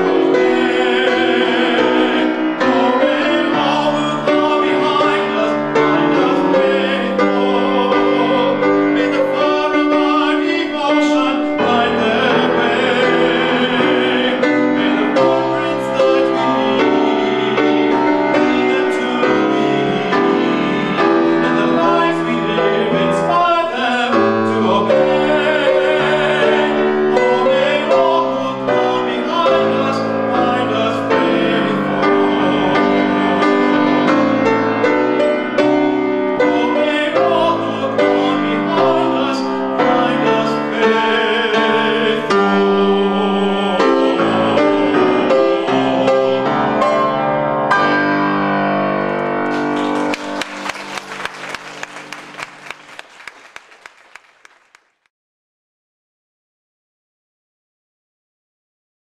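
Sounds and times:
man singing: 0.0s - 34.2s, 36.3s - 47.0s
piano: 0.0s - 55.1s.

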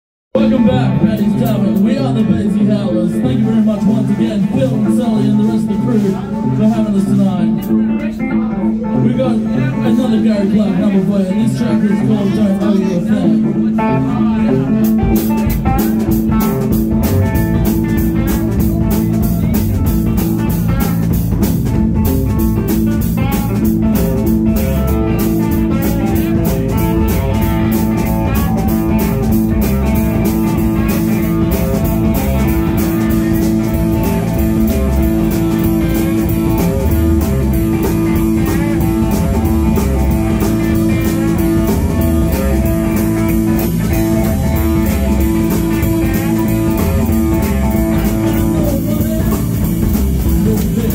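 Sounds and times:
electric guitars: 0.3s - 50.9s
drum kit beat: 13.2s - 50.9s.

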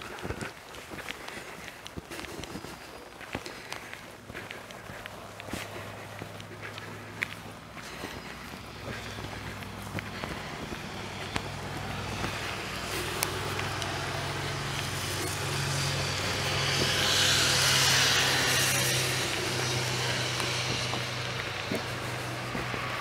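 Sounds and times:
faint footsteps: 0.0s - 23.0s
motor engine humming: 0.0s - 23.0s.

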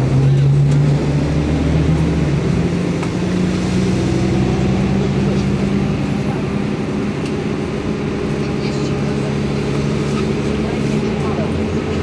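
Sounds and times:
bus engine drone: 0.0s - 12.0s.

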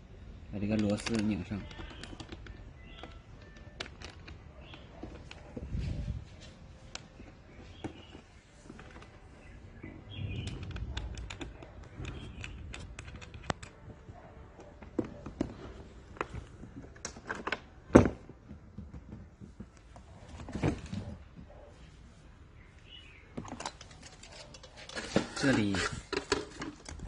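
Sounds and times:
metal parts and tools clicking: 0.6s - 5.6s, 10.2s - 17.8s, 23.4s - 27.0s.

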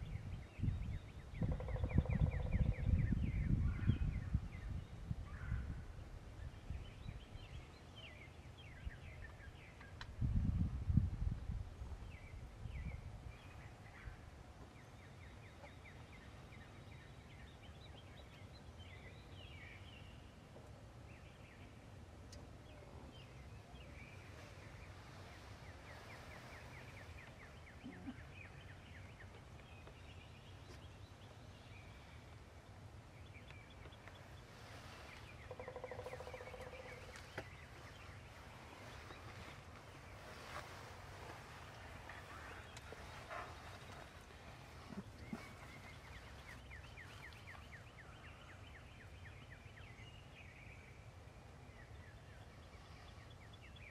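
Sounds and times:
small birds chirping: 12.0s - 53.9s
wild turkey call: 35.4s - 37.4s.

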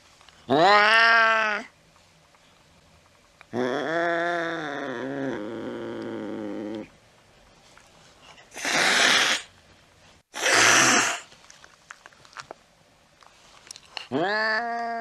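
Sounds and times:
cat yowling: 0.5s - 1.7s
cat hissing: 8.4s - 9.5s, 10.3s - 11.3s.

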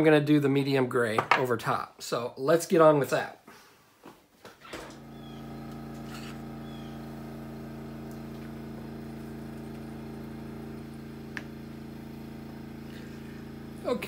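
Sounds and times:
electric motor humming: 4.6s - 14.0s.

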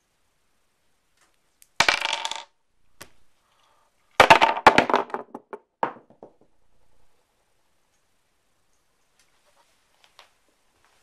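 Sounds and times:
stones clattering on wooden table: 1.8s - 3.3s, 4.2s - 7.1s.

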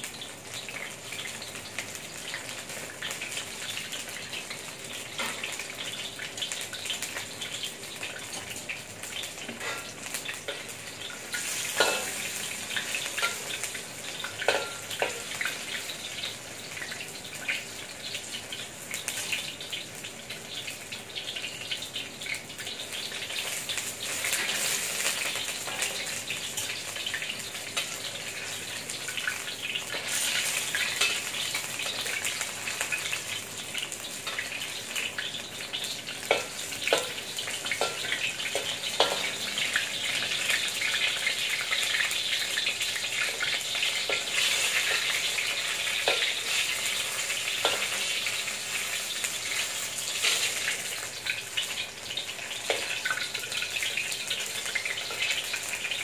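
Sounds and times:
food deep-frying in oil: 0.0s - 56.0s
metal utensil clicking on wok: 11.8s - 12.2s, 36.3s - 39.4s, 47.6s - 48.0s.

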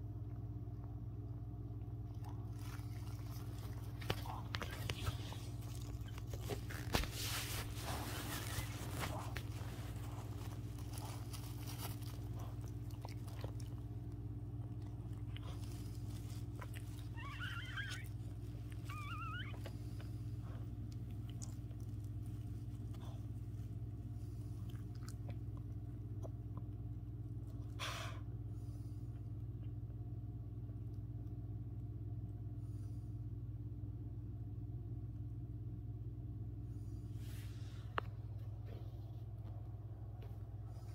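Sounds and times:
low hum: 0.0s - 40.9s
dog licking and chewing: 1.9s - 6.9s, 7.8s - 17.4s
puppy squeaks: 17.0s - 18.2s, 18.8s - 19.8s.

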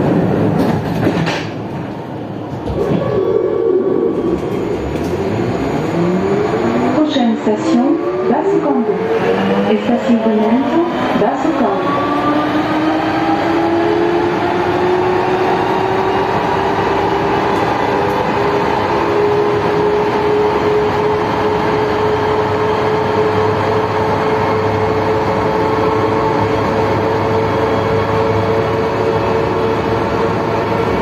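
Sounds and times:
traction motor whine rising: 2.8s - 31.0s.

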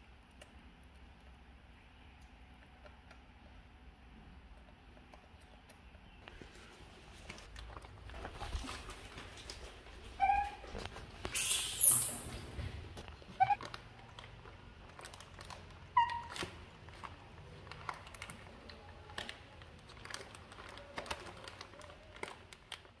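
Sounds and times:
baby macaques chirping: 10.2s - 10.6s, 11.3s - 12.4s, 13.4s - 13.6s
plastic bag crinkling: 13.0s - 23.0s.

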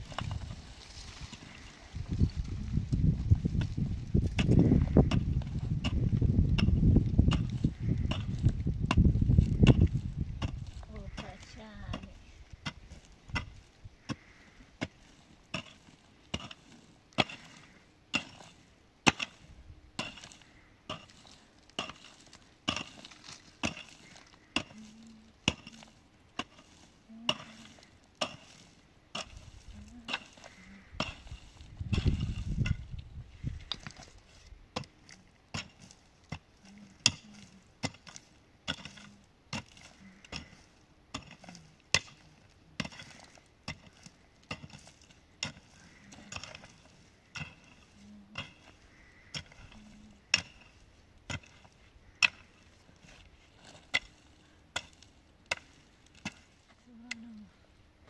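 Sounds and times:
low rumble: 0.0s - 11.2s
hand tool chopping wood: 3.6s - 19.4s, 20.0s - 32.9s, 34.7s - 42.2s, 42.8s - 57.2s.

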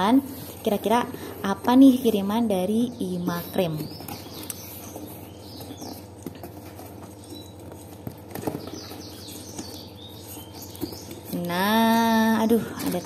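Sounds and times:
birds chirping: 0.0s - 13.0s
knocks and scrapes on cardboard: 3.7s - 13.0s.

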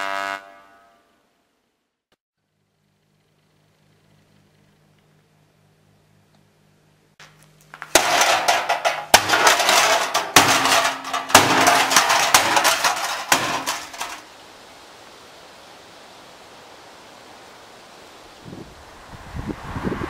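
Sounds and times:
heavy banging and clattering: 7.8s - 14.2s
wind hiss: 14.2s - 20.0s.

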